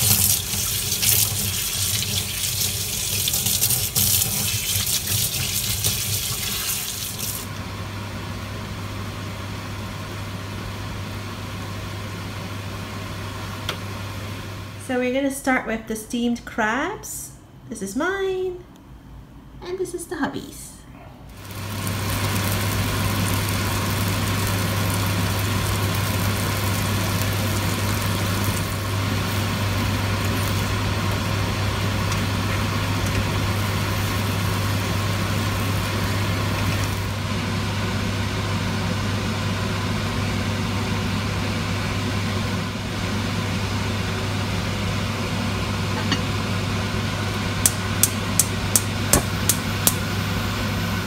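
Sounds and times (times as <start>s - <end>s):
prawns sizzling in oil: 0.0s - 7.6s, 21.4s - 37.5s.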